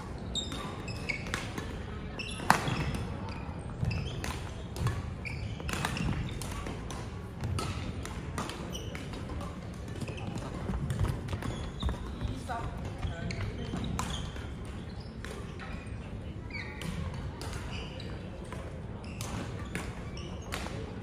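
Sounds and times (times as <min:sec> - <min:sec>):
shoe squeaks on floor: 0:00.1 - 0:06.6, 0:08.6 - 0:09.2, 0:10.0 - 0:17.0, 0:17.6 - 0:18.3, 0:19.0 - 0:20.8
racket striking shuttlecock: 0:05.6 - 0:11.0.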